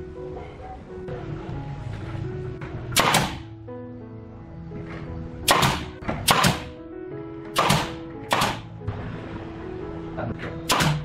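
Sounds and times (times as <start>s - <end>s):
background music: 0.0s - 11.0s
nail gun shots: 2.9s - 3.5s, 5.5s - 6.8s, 7.5s - 8.7s, 10.6s - 11.0s.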